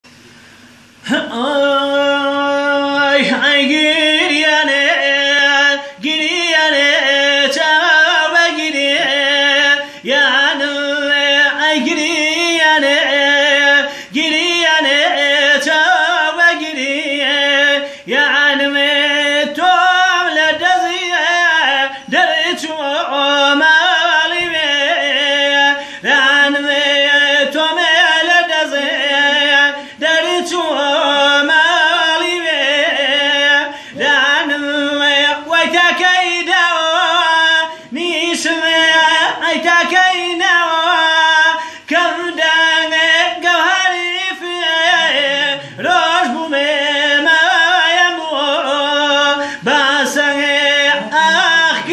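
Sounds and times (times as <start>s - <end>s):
singer breathing: 0.1s - 1.1s, 9.8s - 10.1s, 13.8s - 14.2s, 17.8s - 18.1s, 25.7s - 26.1s, 29.7s - 30.0s, 33.6s - 34.0s, 37.7s - 38.0s, 41.6s - 41.9s, 45.5s - 45.9s, 49.3s - 49.7s
man singing unaccompanied: 1.0s - 51.9s.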